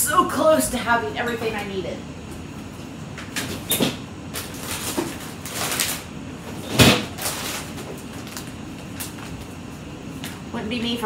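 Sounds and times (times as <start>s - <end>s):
refrigerator door clunks: 6.6s - 7.2s.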